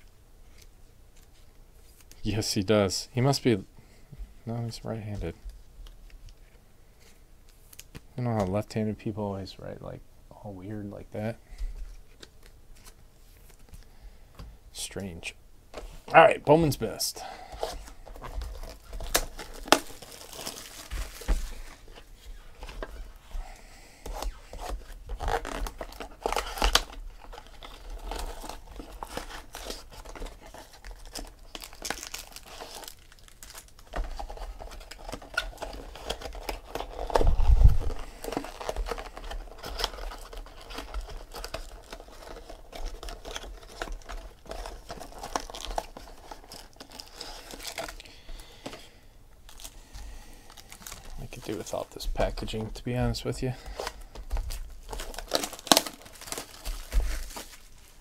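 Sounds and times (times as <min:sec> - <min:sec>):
packaging ripping and crinkling: 0:16.6 - 0:58.0.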